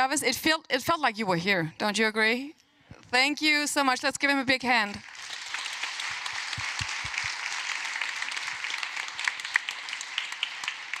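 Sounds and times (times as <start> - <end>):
loud single claps: 4.9 - 11.0
audience applauding: 5.0 - 11.0.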